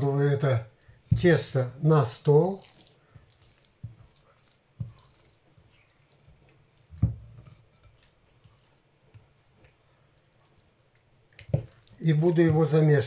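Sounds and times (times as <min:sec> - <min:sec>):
dough thumping onto mat: 0:01.1 - 0:01.4.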